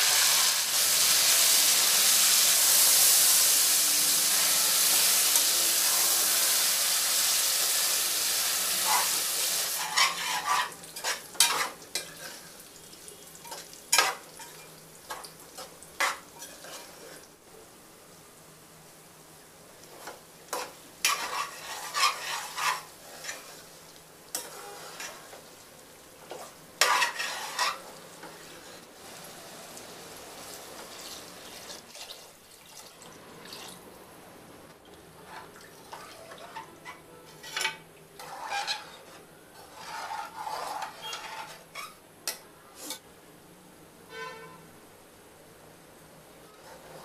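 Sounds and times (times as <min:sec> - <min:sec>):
metal spoon scraping pot: 0:08.8 - 0:12.5, 0:20.0 - 0:23.6, 0:24.3 - 0:25.3, 0:26.3 - 0:28.8, 0:36.5 - 0:42.0.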